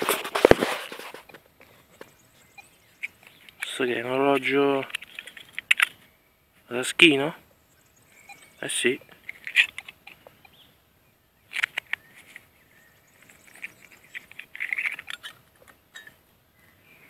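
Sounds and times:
fingers scraping metal watch case: 0:09.2 - 0:10.2, 0:13.2 - 0:16.1.

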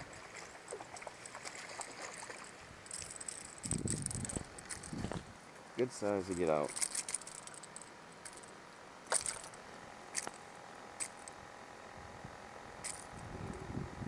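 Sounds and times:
soft low rustle: 0:00.1 - 0:05.5
fishing lure hooks clicking and jingling: 0:02.8 - 0:05.0, 0:06.3 - 0:08.5.

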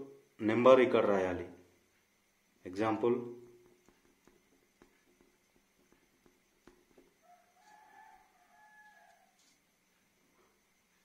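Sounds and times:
faint rooster crow: 0:06.7 - 0:10.7.

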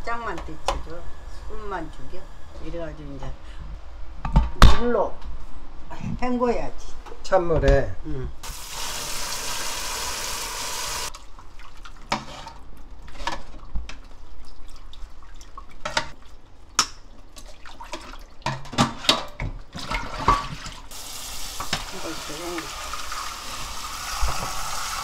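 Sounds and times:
tap water running: 0:08.4 - 0:12.3, 0:19.8 - 0:25.0
water splashing and dripping: 0:12.8 - 0:18.6.

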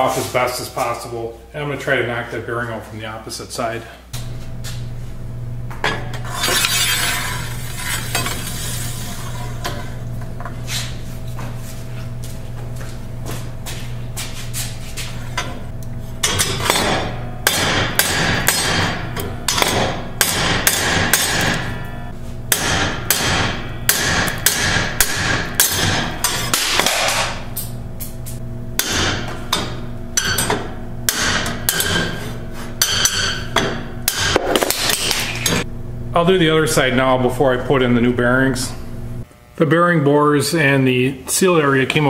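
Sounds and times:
hammer striking steel rod: 0:16.2 - 0:21.9, 0:22.5 - 0:27.4, 0:28.8 - 0:35.6.

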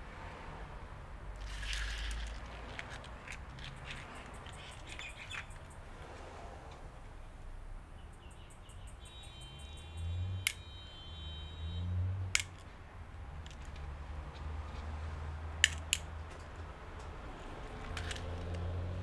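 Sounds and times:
plastic parts clicking: 0:01.4 - 0:05.7, 0:12.4 - 0:12.7, 0:13.4 - 0:13.9, 0:15.6 - 0:17.1, 0:17.7 - 0:18.7.

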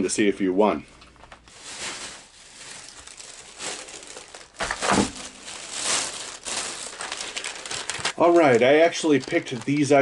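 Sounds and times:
plastic bag rustling: 0:01.1 - 0:10.0.

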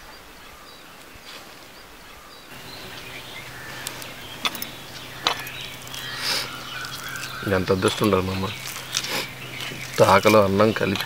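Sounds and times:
faint bird chirps: 0:00.0 - 0:11.0
low hum: 0:02.5 - 0:11.0
rice squishing in bowl: 0:02.5 - 0:11.0
sharp clicks: 0:02.5 - 0:11.0.

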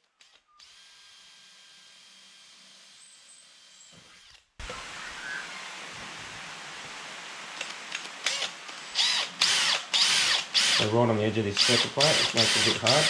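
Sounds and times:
steady hiss: 0:04.6 - 0:13.0
drill boring into metal: 0:08.3 - 0:13.0
squealing drill bit whine: 0:09.0 - 0:13.0.

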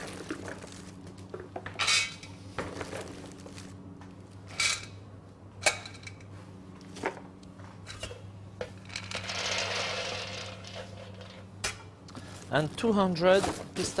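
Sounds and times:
steady low hum: 0:00.0 - 0:14.0
nuts rattling onto a tray: 0:08.9 - 0:11.4.

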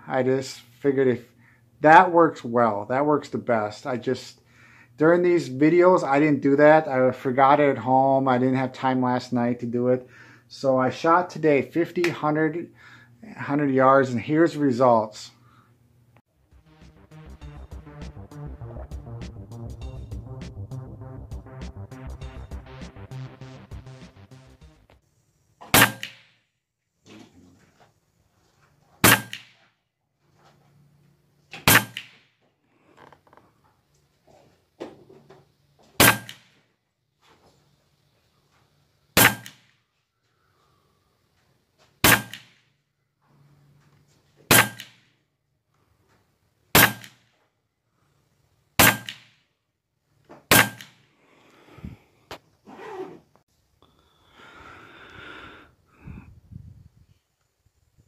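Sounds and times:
background music: 0:16.4 - 0:25.0
air rifle shots: 0:25.7 - 0:26.3, 0:29.0 - 0:29.6, 0:31.6 - 0:32.2, 0:36.0 - 0:36.5, 0:39.2 - 0:39.7, 0:42.0 - 0:42.6, 0:44.5 - 0:45.0, 0:46.8 - 0:47.2, 0:48.8 - 0:49.3, 0:50.5 - 0:51.0.

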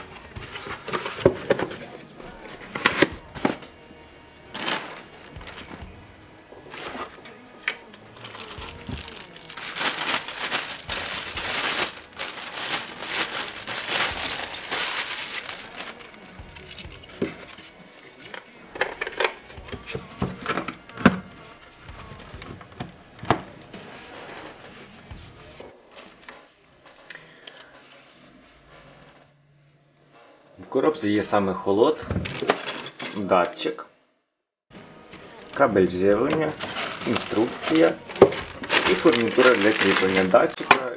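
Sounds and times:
plastic bags rustling: 0:00.0 - 0:03.6, 0:04.5 - 0:06.0, 0:06.6 - 0:07.4, 0:08.0 - 0:17.6, 0:32.2 - 0:33.0, 0:35.4 - 0:40.9.

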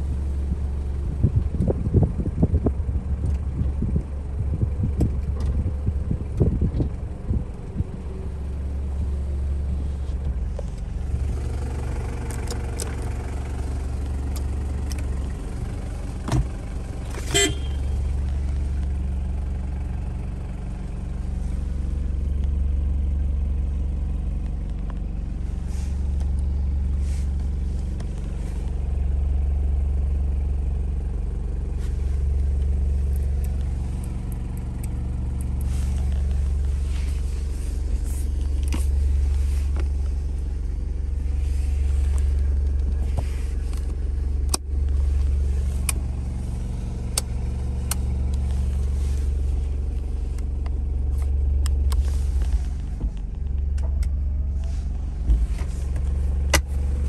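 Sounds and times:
diesel engine idling: 0:00.0 - 0:57.0
car horn toot: 0:17.2 - 0:18.1.

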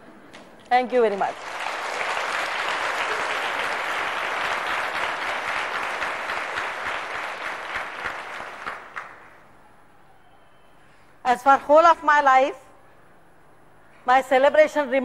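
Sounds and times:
audience applauding: 0:01.2 - 0:09.4.

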